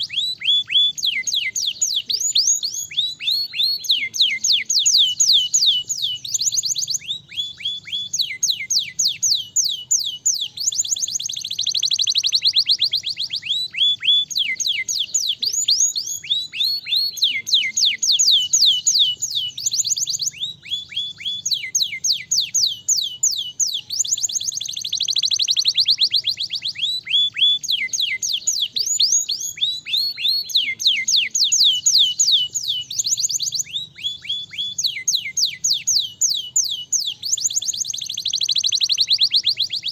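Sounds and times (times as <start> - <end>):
canary singing: 0.0 - 39.9.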